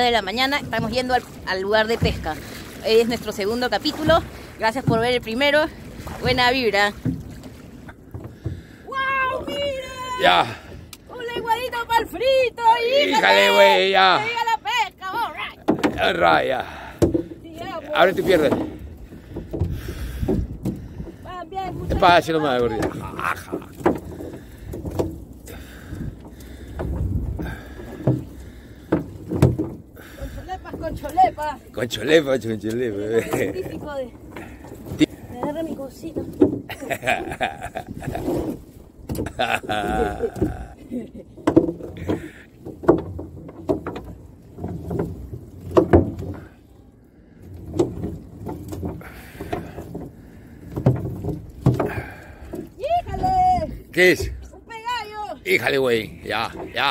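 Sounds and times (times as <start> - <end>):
wet net knocking on hull: 0.0 - 8.6, 15.6 - 20.8, 21.8 - 25.2, 26.0 - 29.8, 32.6 - 40.7, 41.4 - 46.5, 50.7 - 54.5
wind buffeting microphone: 14.9 - 28.0, 32.5 - 41.1, 51.4 - 55.3
net knocking on boat side: 15.6 - 17.8, 21.8 - 25.2, 28.9 - 29.8, 41.4 - 46.5.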